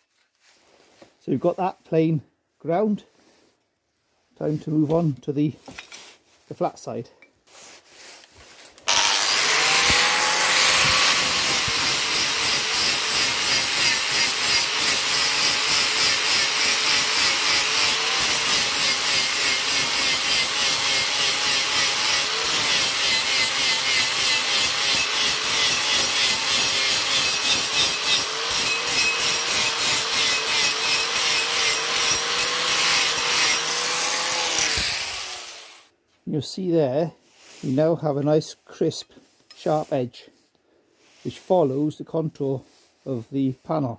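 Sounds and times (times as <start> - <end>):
angle grinder grinding steel: 8.9 - 35.9.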